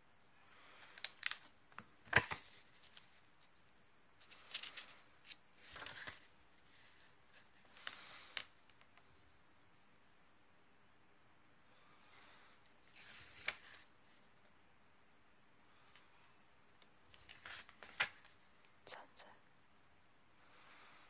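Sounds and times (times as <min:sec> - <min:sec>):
paper pages turning: 0:00.8 - 0:03.3, 0:04.2 - 0:09.0, 0:12.8 - 0:14.2, 0:17.1 - 0:18.6.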